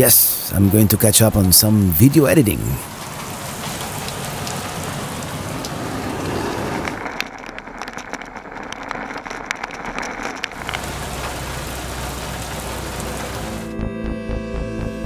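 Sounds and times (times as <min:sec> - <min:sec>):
heavy rain hissing: 0:00.0 - 0:07.1, 0:10.6 - 0:13.8
raindrops ticking close by: 0:00.0 - 0:14.9.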